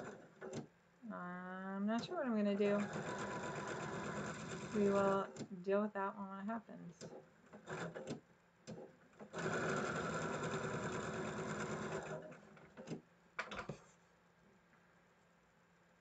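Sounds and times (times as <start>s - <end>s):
sewing machine stitching: 0.0s - 0.6s, 2.0s - 5.5s, 7.0s - 13.0s.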